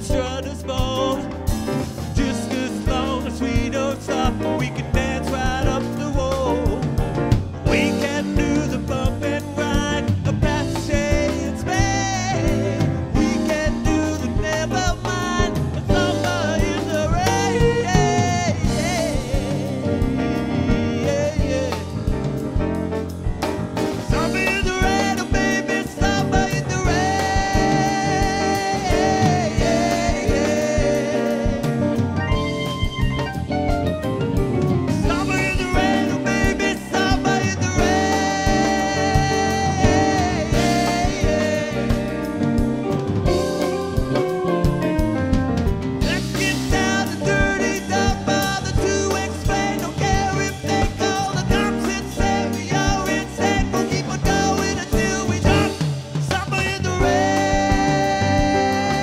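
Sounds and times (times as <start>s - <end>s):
man singing: 0.0s - 22.6s, 24.0s - 33.5s, 34.9s - 45.0s, 46.0s - 59.0s
keyboards and drum kit: 0.0s - 59.0s
electric guitar: 9.5s - 48.7s.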